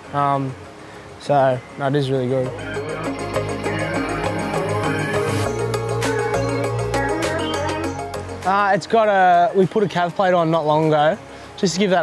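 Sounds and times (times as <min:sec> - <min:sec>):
background music with steady beat: 0:02.4 - 0:12.0.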